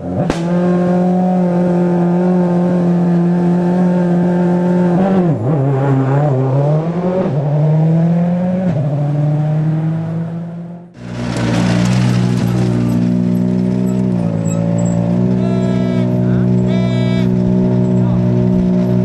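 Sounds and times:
rally car engine revving: 0:00.0 - 0:19.0
second car engine running: 0:09.5 - 0:19.0.

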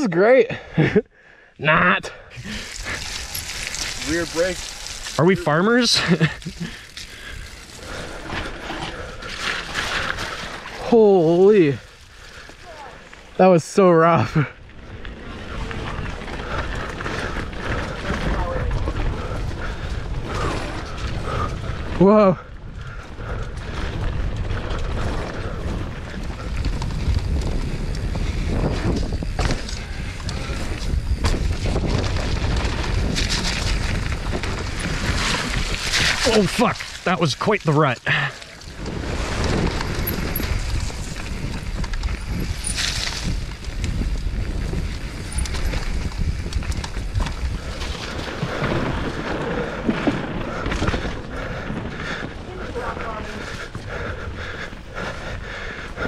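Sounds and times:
bike tyre rumble: 0:02.2 - 0:56.0
wind buffeting microphone: 0:14.2 - 0:37.0, 0:38.6 - 0:56.0.

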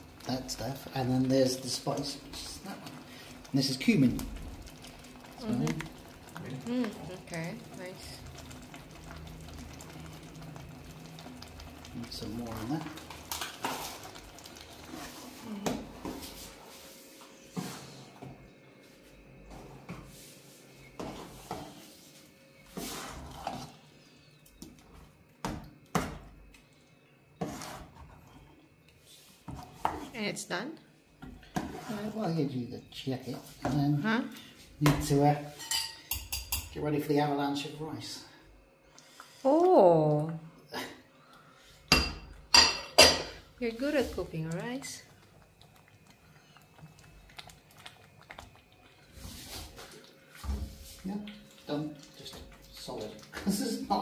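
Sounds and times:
spoon scraping saucepan: 0:27.4 - 0:28.4, 0:31.4 - 0:32.2.

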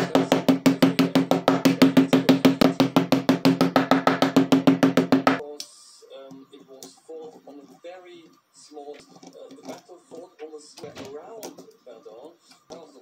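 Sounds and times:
wooden mallet tapping rapidly: 0:00.0 - 0:05.4.

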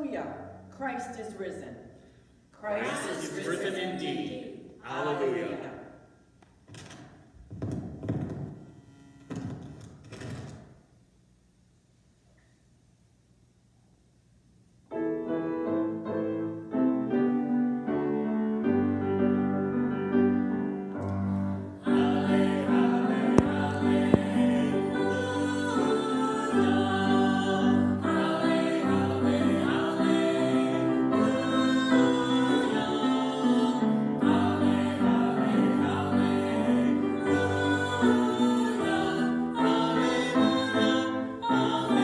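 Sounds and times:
small group singing a hymn: 0:02.6 - 0:06.0, 0:21.1 - 0:42.0
instrumental church music: 0:05.0 - 0:10.9, 0:14.6 - 0:42.0.

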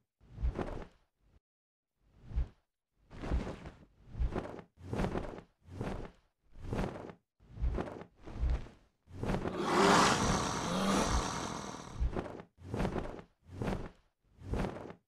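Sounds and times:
dragon growling roar: 0:09.5 - 0:12.0.

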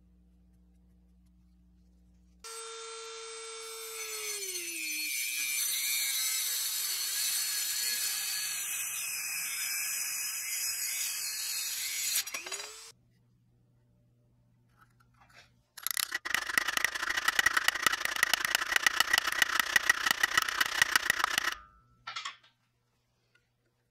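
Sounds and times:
rotary tool motor whine: 0:02.5 - 0:04.8, 0:05.4 - 0:12.9, 0:15.8 - 0:21.6.

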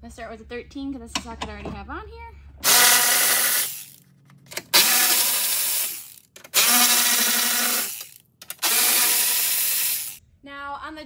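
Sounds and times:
electric ratchet running: 0:02.6 - 0:10.2
ratchet clicks: 0:02.6 - 0:10.2.

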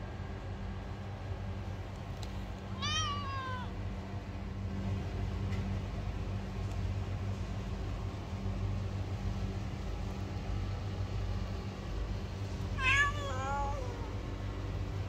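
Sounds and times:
low mechanical hum: 0:00.0 - 0:15.0
cat meowing: 0:02.8 - 0:03.8, 0:12.8 - 0:14.2.

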